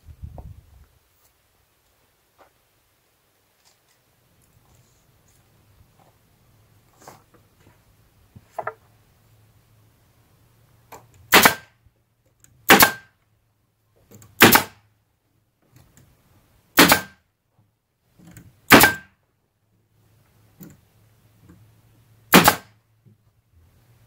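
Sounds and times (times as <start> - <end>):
pneumatic stapler shots: 11.3 - 11.7, 12.7 - 13.1, 14.4 - 14.8, 16.8 - 17.2, 18.7 - 19.1, 22.3 - 22.7.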